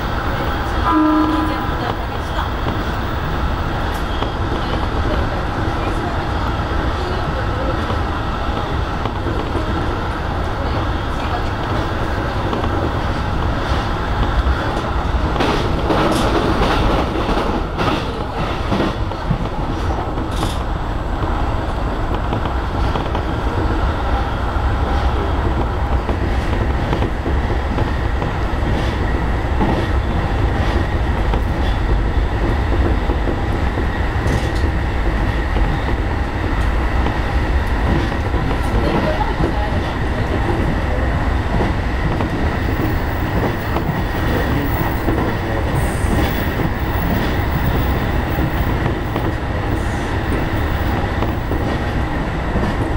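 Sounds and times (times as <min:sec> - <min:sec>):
train wheels rumbling on rail: 0:00.0 - 0:52.9
sharp clicks of train wheels: 0:11.4 - 0:21.4, 0:24.8 - 0:52.9.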